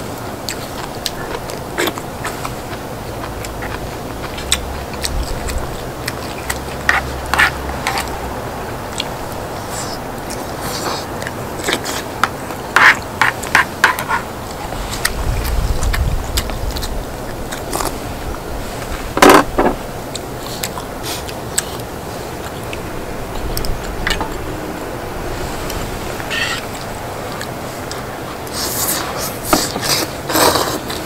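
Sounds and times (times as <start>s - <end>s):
person chewing and biting: 0.5s - 8.2s.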